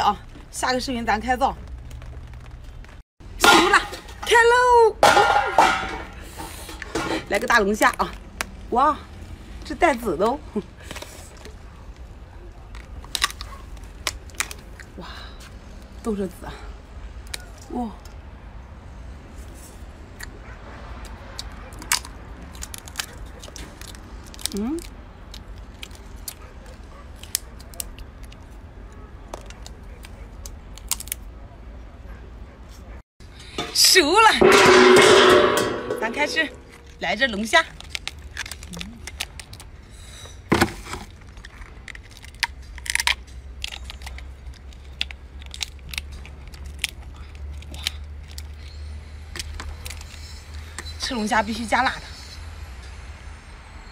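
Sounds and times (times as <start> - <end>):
lobster shell cracking: 12.7 - 14.9, 21.4 - 28.5, 29.4 - 31.2, 37.8 - 39.7, 41.3 - 48.8.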